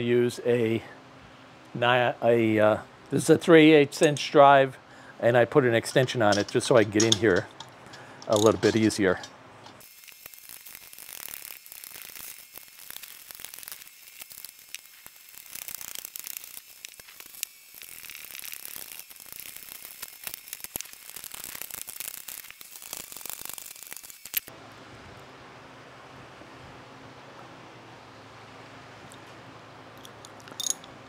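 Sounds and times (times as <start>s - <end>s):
faint steady hum: 0.0s - 31.0s
socket ratchet clicking: 9.6s - 24.5s.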